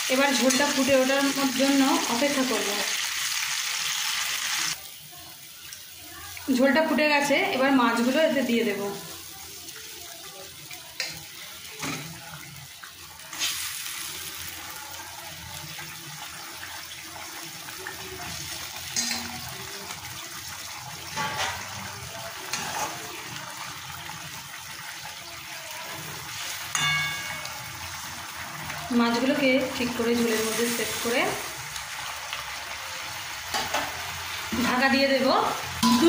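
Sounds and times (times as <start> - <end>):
gravy boiling in wok: 0.0 - 36.0.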